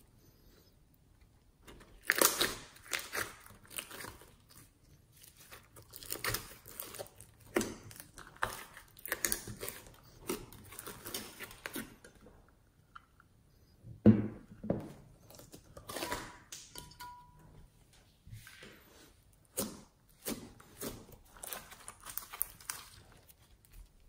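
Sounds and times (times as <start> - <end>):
slime squelching and popping: 1.6 - 12.3.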